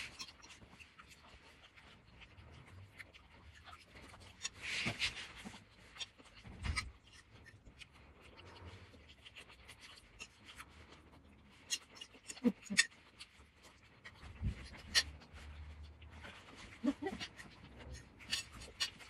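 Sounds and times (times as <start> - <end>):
slurping and chewing noodles: 0.0 - 19.0.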